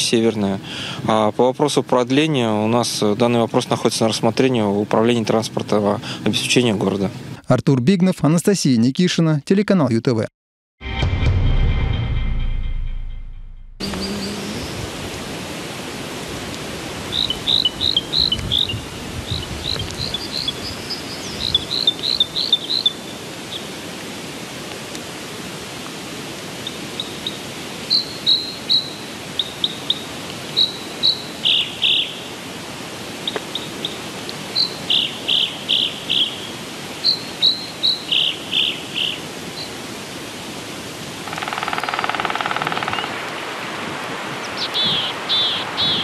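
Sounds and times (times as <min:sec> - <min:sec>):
outdoor ambience hiss: 0:00.0 - 0:10.3, 0:13.8 - 0:46.0
small birds chirping: 0:13.8 - 0:14.9, 0:17.1 - 0:23.7, 0:26.6 - 0:32.3, 0:33.2 - 0:39.8, 0:44.4 - 0:46.0.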